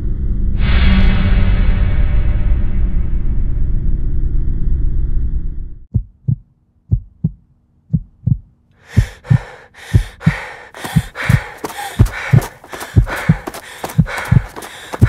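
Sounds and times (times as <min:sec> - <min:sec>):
heartbeat thumps: 0:05.9 - 0:15.0
hissing panting breaths: 0:08.8 - 0:15.0.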